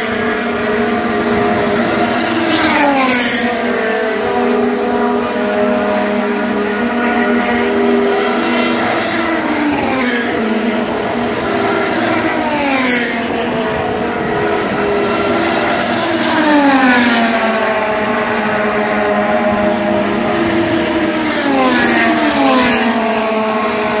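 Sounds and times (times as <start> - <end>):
drone of distant race cars: 0.0 - 24.0
race cars passing at speed: 0.0 - 24.0.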